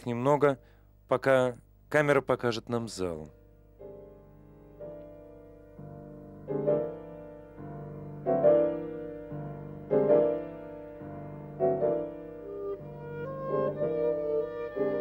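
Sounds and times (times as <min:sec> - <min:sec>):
piano chords: 0:03.6 - 0:15.0.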